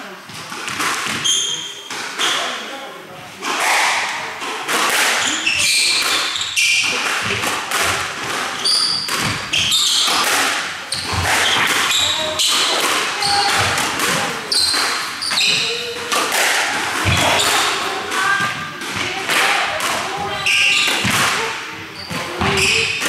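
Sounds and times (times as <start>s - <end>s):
squash ball hitting rackets and walls: 0.3s - 2.7s, 3.4s - 23.0s
shoes squeaking on wooden floor: 5.2s - 16.1s, 20.1s - 21.2s, 21.8s - 23.0s.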